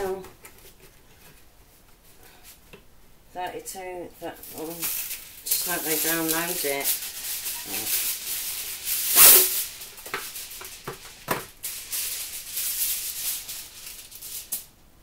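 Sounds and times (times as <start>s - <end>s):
aluminium foil crinkling: 4.3s - 14.8s.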